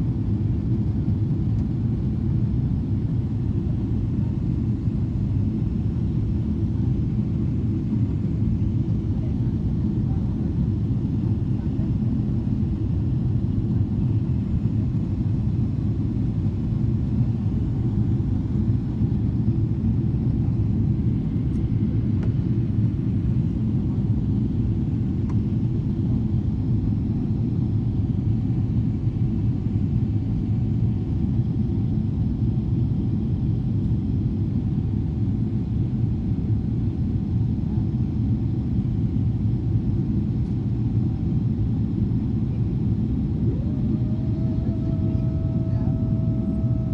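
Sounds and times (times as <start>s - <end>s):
airplane cabin rumble: 0.0s - 46.9s.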